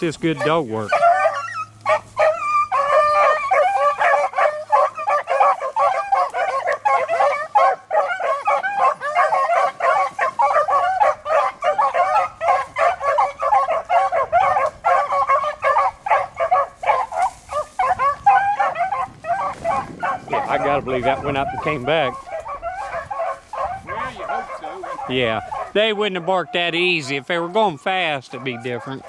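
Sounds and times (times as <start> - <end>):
dogs baying: 0.0 - 29.0
dogs yipping: 0.0 - 29.0.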